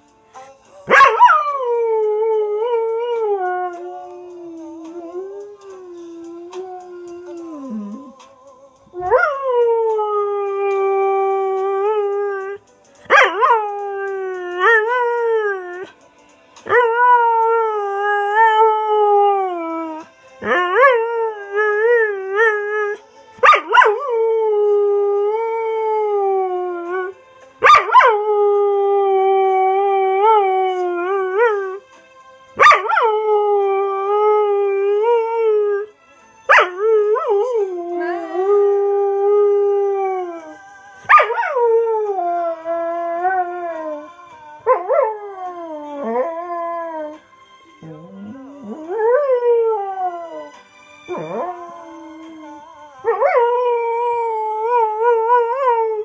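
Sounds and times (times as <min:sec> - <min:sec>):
dog howling: 0:47.8 - 0:56.0.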